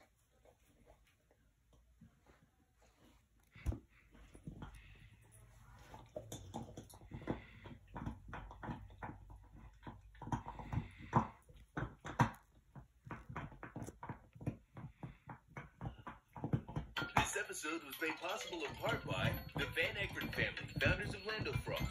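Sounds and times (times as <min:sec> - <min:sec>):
dog chewing: 0:03.4 - 0:17.3.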